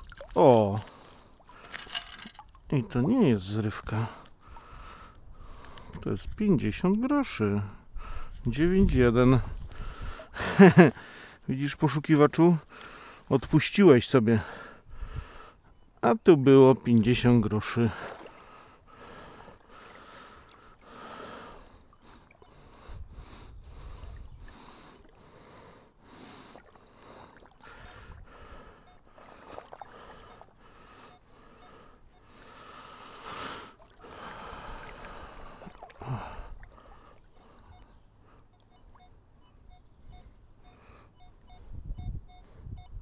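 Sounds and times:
water sloshing: 0.0 - 3.0, 17.9 - 20.9, 26.4 - 31.4, 33.5 - 39.2
short electronic beeps: 28.8 - 29.1, 37.4 - 43.0.

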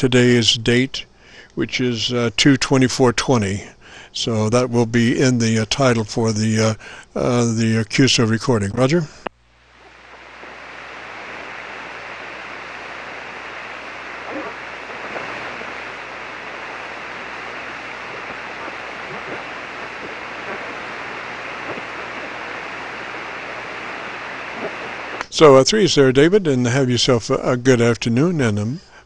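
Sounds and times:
radio receiver static hiss: 0.0 - 29.0
low hum: 7.3 - 25.3.

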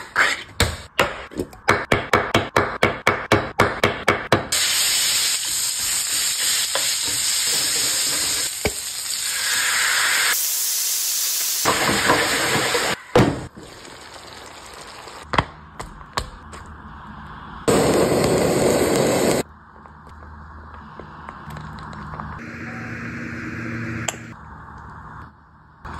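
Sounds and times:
meatballs sizzling in oil: 4.6 - 12.7.

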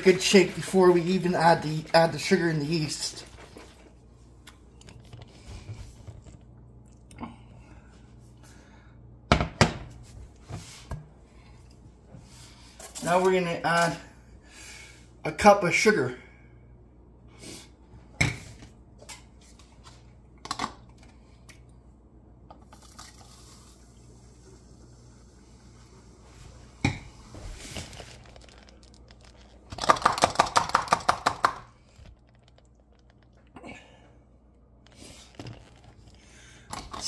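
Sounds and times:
sugar pouring hiss: 22.8 - 26.4.

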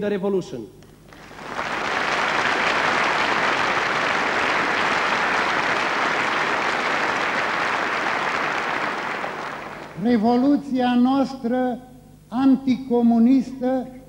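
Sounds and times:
audience applauding: 1.1 - 10.0.

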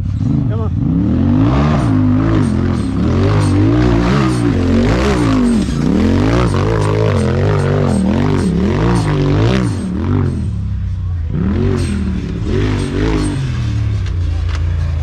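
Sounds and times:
engine revving: 0.0 - 15.0.

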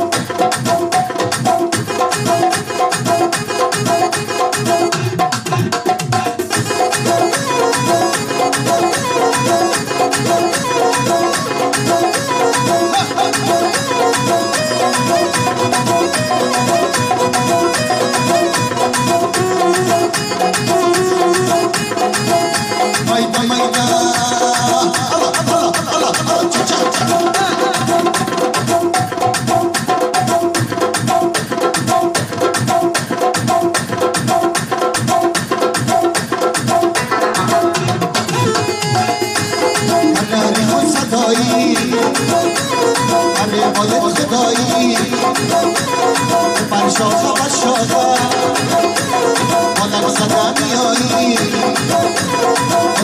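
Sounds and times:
electronic keyboard melody: 0.0 - 31.2, 36.7 - 53.0
tabla drums: 0.0 - 53.0.

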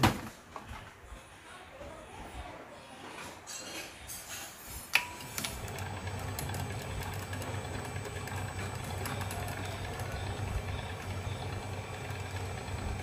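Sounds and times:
motor humming: 5.2 - 13.0.

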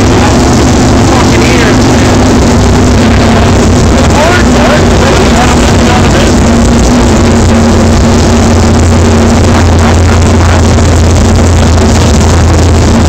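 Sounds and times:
loud engine running on dynamometer: 0.0 - 13.0.

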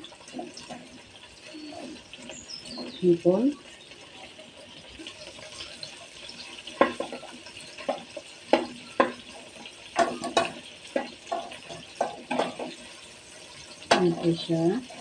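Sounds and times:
shrimp sizzling in oil: 0.0 - 15.0
ladle knocking and scraping a wok: 4.2 - 15.0.

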